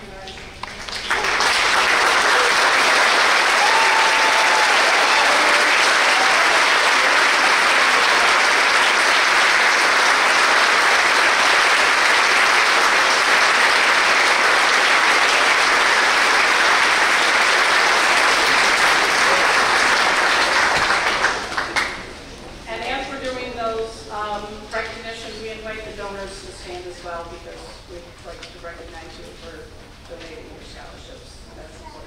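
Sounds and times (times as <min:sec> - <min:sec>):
audience applauding: 0:00.6 - 0:22.2.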